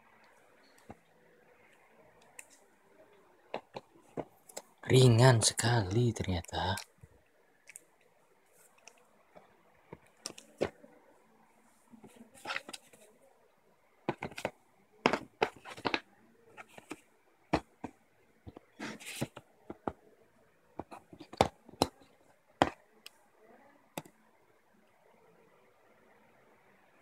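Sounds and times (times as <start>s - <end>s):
cardboard and paper rustling: 12.0s - 13.1s, 15.1s - 16.0s, 18.5s - 19.9s
clicks and taps on cardboard box: 20.8s - 21.9s.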